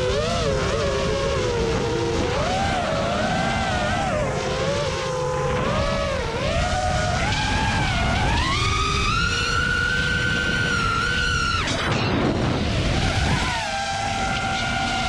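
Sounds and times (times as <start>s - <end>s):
drone motors whining: 0.0s - 15.0s
wind and rumble: 0.0s - 15.0s.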